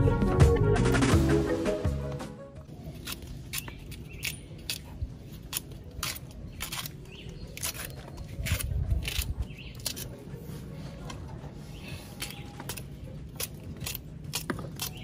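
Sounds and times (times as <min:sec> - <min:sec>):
knife slicing okra: 0:02.8 - 0:10.2, 0:12.0 - 0:15.0.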